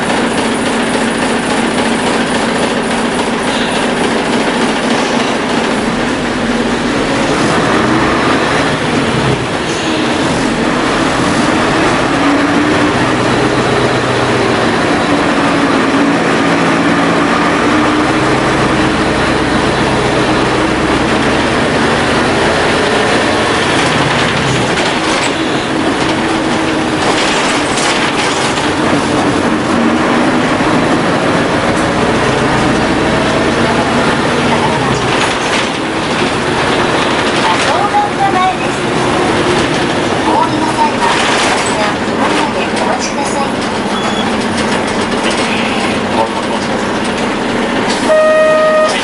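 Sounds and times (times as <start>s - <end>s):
diesel bus engine running: 0.0s - 49.0s
road noise: 0.0s - 49.0s
rattles and clicks: 22.5s - 29.8s, 34.1s - 48.1s.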